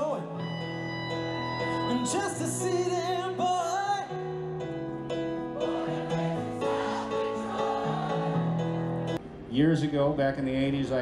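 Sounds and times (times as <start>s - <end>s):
live band playing slow song: 0.0s - 4.3s
person singing wavering notes: 0.4s - 4.1s.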